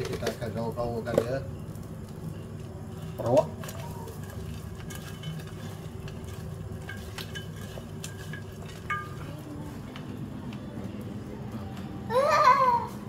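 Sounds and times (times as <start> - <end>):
metal bowl ringing: 6.8 - 9.6.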